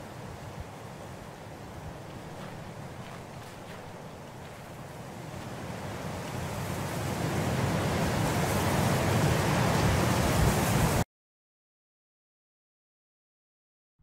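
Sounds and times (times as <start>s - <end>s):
rushing wind-like noise: 0.0s - 11.0s.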